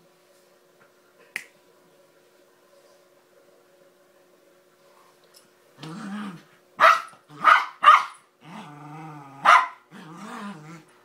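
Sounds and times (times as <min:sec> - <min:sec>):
small dog growling: 0:05.8 - 0:06.5, 0:08.4 - 0:10.9
dog barking: 0:06.8 - 0:08.2, 0:09.4 - 0:09.8.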